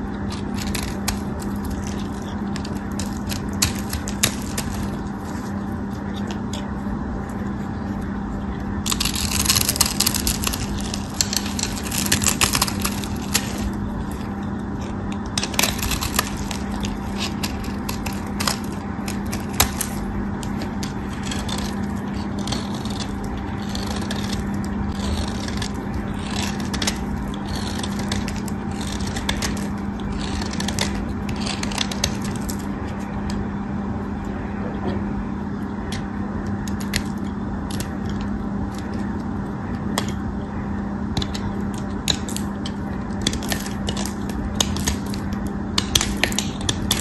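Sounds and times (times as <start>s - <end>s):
knife scraping soap: 0.0s - 6.8s, 8.8s - 33.4s
low hum: 0.0s - 47.0s.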